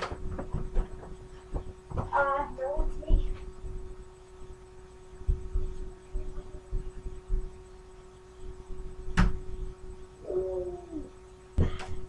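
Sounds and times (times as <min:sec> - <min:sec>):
dull low thumps on a floor: 0:00.0 - 0:03.9, 0:05.2 - 0:07.6
electrical hum: 0:00.0 - 0:12.0.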